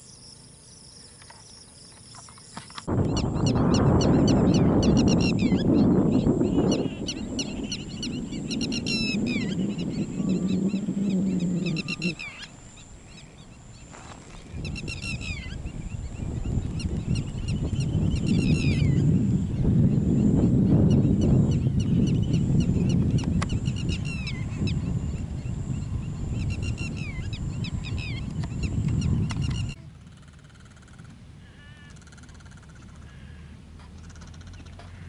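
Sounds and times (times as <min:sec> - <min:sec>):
high insect whine: 0:00.0 - 0:31.0
birds chirping: 0:00.0 - 0:35.0
loud low rumble: 0:02.9 - 0:12.3.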